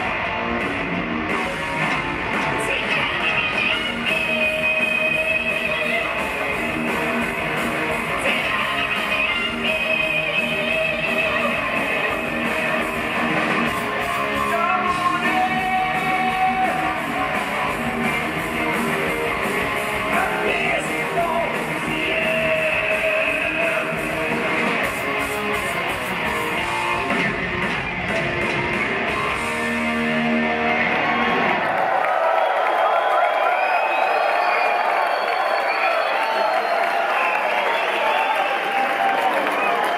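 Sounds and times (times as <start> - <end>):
distorted electric guitars: 0.0 - 31.7
bass guitar: 0.0 - 31.8
drums: 0.0 - 39.9
man singing: 14.4 - 17.6, 20.1 - 24.5.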